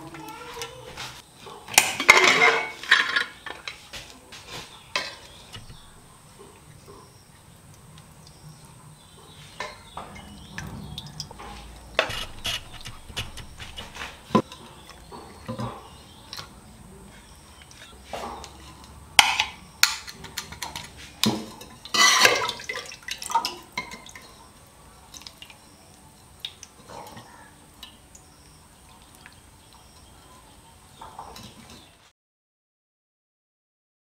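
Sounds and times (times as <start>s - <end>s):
dishes clattering: 1.0s - 7.0s, 9.3s - 16.0s, 18.1s - 24.2s.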